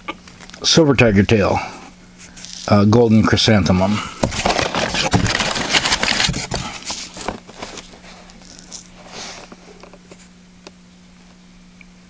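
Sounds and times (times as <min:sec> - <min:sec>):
paper rustling and scraping: 0:02.2 - 0:02.8, 0:04.2 - 0:10.3.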